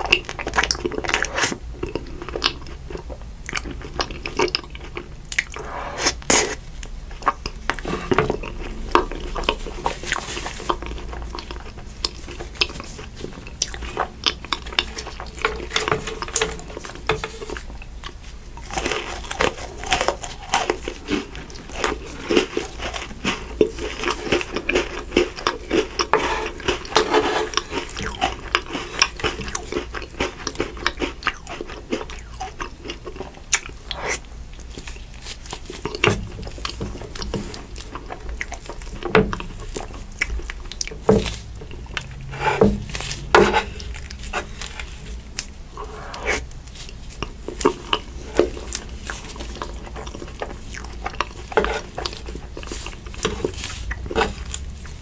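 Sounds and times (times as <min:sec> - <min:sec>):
crunchy bites and chewing: 0:00.0 - 0:55.0.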